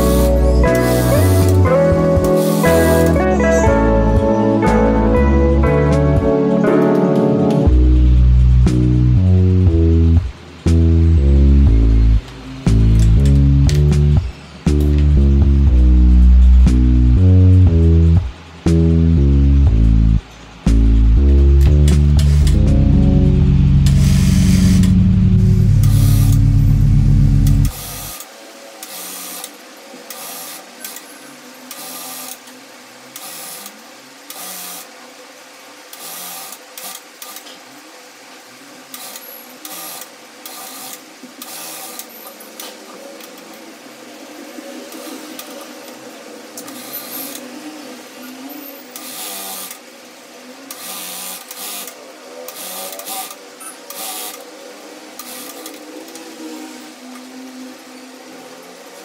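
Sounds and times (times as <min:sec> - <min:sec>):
music: 0:00.0 - 0:28.2.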